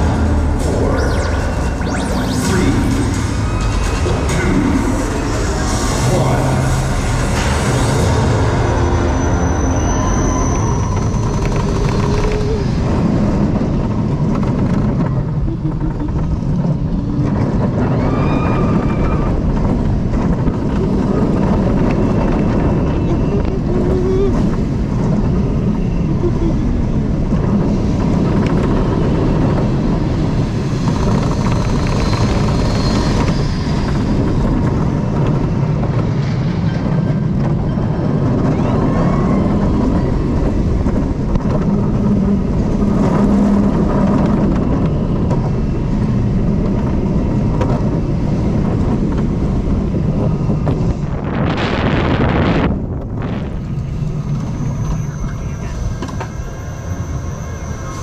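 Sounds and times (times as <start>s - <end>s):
wind rushing over microphone: 0.0s - 58.0s
roller coaster wheels rumbling on track: 1.8s - 58.0s.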